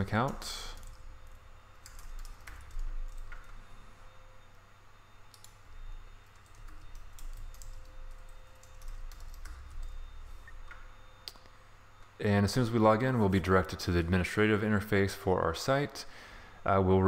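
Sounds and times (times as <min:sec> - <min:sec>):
computer keyboard typing: 0:00.0 - 0:03.6, 0:05.3 - 0:05.6, 0:06.2 - 0:10.0.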